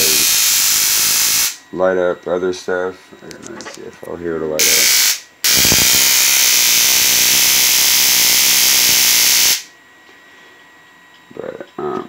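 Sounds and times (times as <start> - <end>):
spark gap buzzing: 0.0 - 1.6, 4.6 - 9.7.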